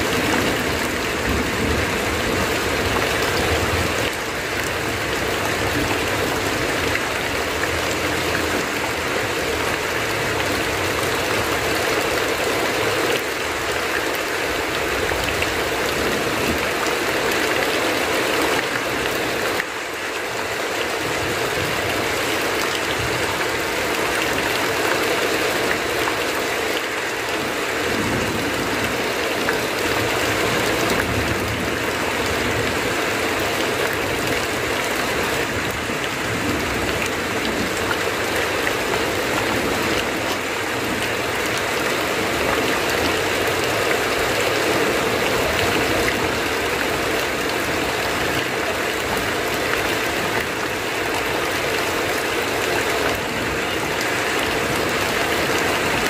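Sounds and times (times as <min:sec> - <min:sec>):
heavy rain falling: 0:00.0 - 0:56.0
runoff pouring off roof: 0:00.0 - 0:56.0.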